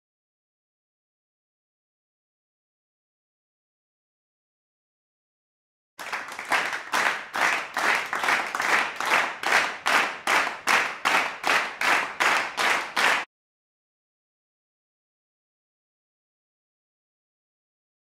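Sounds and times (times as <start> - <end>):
people clapping in unison: 6.0 - 13.3.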